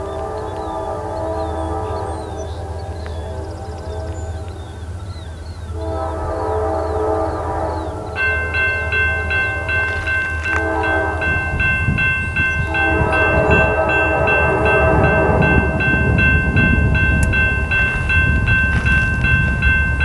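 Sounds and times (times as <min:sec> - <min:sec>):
locomotive air horn blasts: 0:00.0 - 0:05.0, 0:05.6 - 0:20.0
bell ringing: 0:08.2 - 0:20.0.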